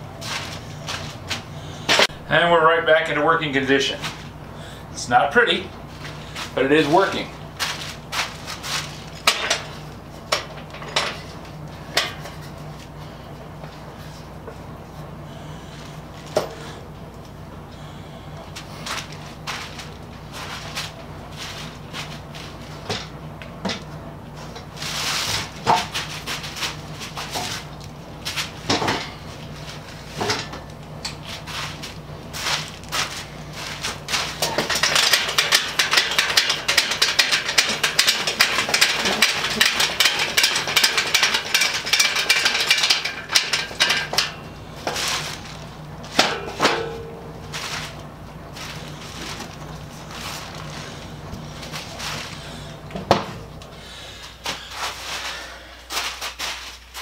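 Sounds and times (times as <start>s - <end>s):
workbench knocks and clatter: 53.0s - 53.4s.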